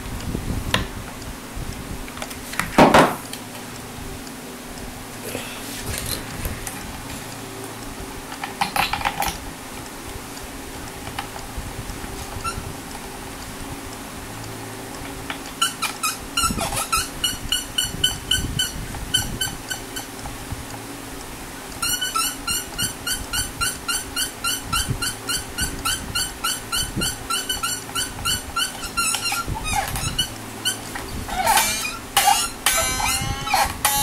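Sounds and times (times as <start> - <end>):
tuning pegs squeaking: 12.2 - 13.1, 15.1 - 20.5, 21.7 - 34.0.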